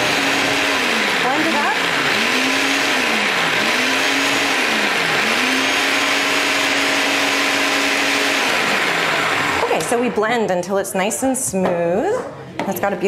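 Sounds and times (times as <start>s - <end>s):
food processor running: 0.0s - 10.4s.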